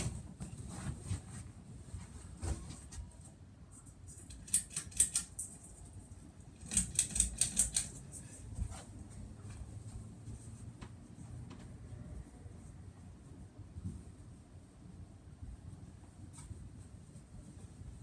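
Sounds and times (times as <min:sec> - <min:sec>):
ceiling fan humming: 0:00.0 - 0:18.0
pull chain clicking and rattling: 0:06.6 - 0:08.0.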